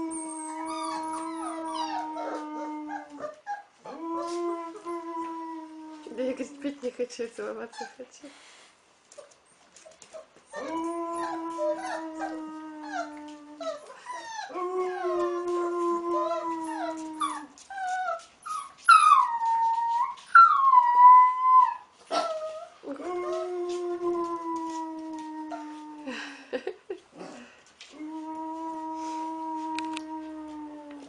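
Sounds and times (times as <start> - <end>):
wolf pup howling: 0.0 - 6.4, 10.5 - 17.6, 27.9 - 31.0.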